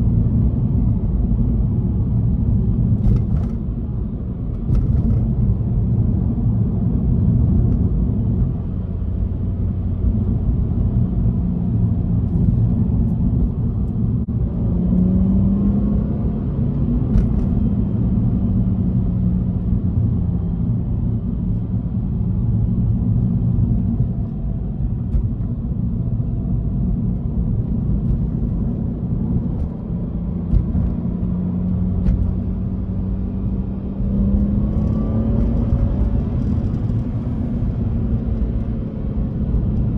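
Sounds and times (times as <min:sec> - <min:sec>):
road noise rumble: 0:00.0 - 0:39.9.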